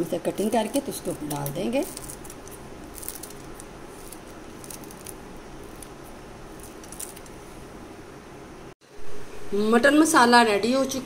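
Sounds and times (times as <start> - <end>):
low room hum: 0.0 - 11.0
spoon sprinkling clicks and ticks: 0.3 - 7.4.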